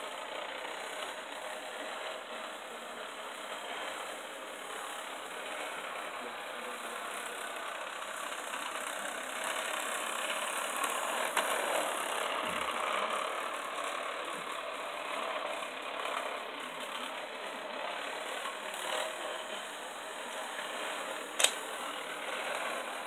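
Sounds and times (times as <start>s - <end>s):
model train whirring on track: 0.0s - 23.0s
sharp click: 21.4s - 21.6s.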